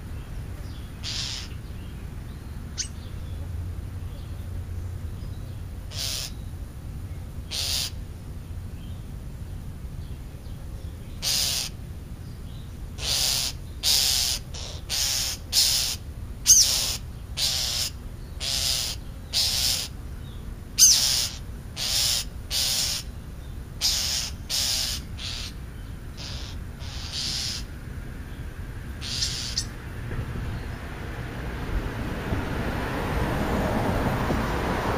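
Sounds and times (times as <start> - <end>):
crows cawing: 1.0 - 1.6, 5.9 - 6.4, 7.5 - 8.0, 11.2 - 11.8, 13.0 - 19.9, 20.8 - 23.1, 23.8 - 25.6, 26.2 - 27.8, 29.0 - 29.8.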